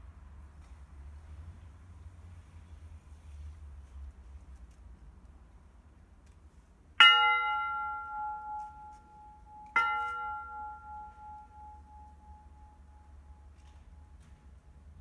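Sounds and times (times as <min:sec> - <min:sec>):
bell ringing: 0:07.0 - 0:14.2.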